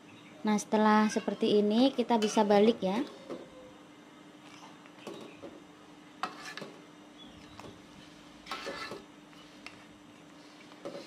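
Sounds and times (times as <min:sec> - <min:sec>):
faint steady hum: 0:00.0 - 0:11.0
metal spatula scraping wok: 0:06.2 - 0:06.7, 0:08.4 - 0:09.1.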